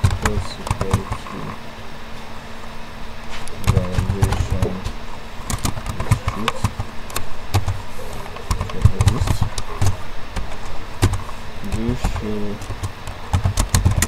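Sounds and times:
keystrokes on computer keyboard: 0.0 - 1.4, 3.6 - 4.8, 5.5 - 14.0
low background rumble: 0.0 - 14.0.

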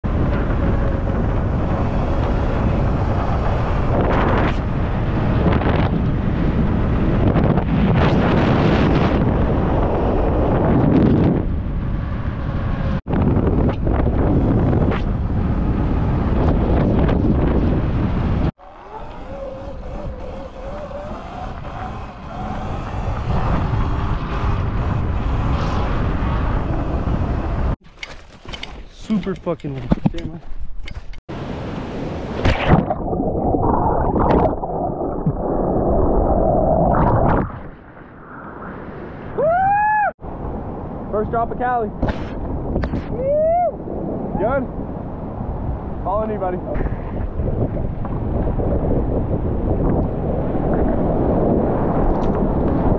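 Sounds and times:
wind buffeting microphone: 0.0 - 27.8, 28.5 - 52.9
electric motor whine: 18.6 - 25.4.

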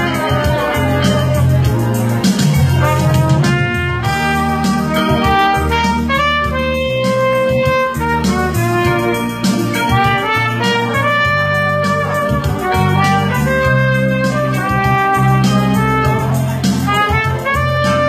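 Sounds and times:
electronic keyboard accompaniment: 0.0 - 18.0
trumpet playing slow melody: 0.0 - 18.0.

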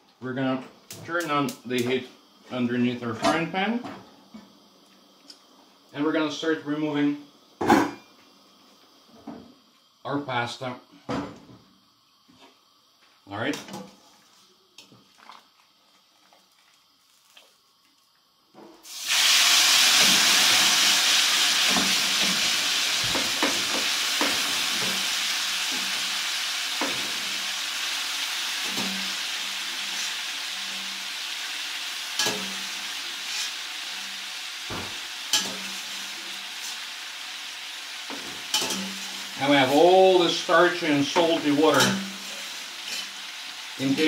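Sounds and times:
pasta sizzling in hot fat: 11.7 - 44.0.

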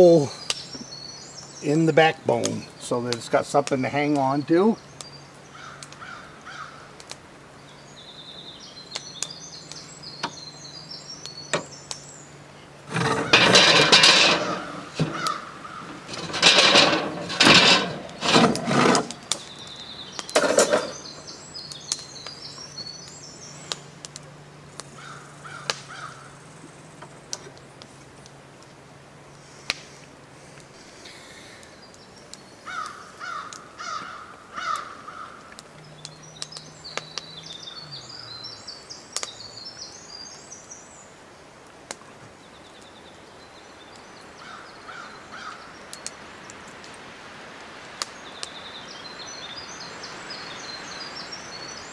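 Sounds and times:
small birds chirping: 0.0 - 28.4, 29.3 - 51.9
loud rough noises: 12.8 - 19.5, 20.2 - 21.3.

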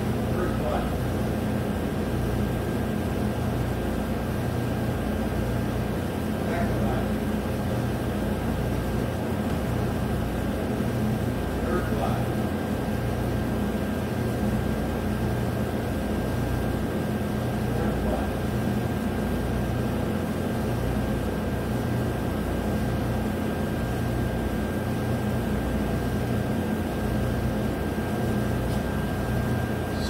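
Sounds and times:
furnace blower humming: 0.0 - 30.0.

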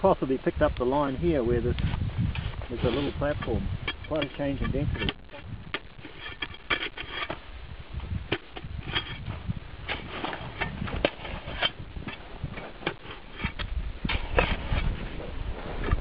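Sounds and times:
shovel scraping snow: 2.6 - 3.5.

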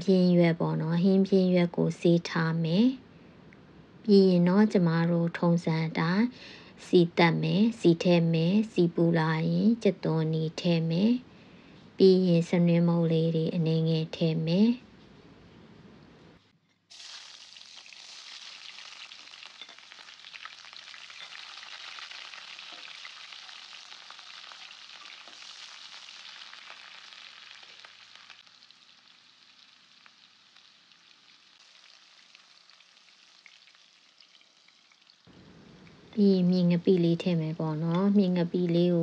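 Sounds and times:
onion sizzling in hot oil: 16.9 - 38.7
spatula stirring in pan: 17.8 - 26.0.

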